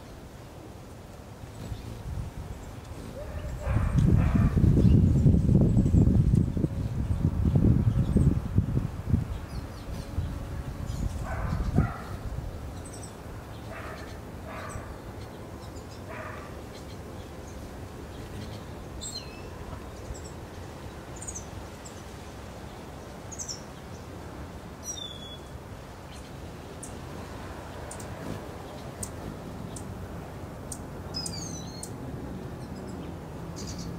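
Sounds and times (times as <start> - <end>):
steady outdoor background: 0.0 - 33.9
distant dog barking: 3.1 - 4.6, 11.2 - 12.2, 13.7 - 15.0, 16.1 - 16.6.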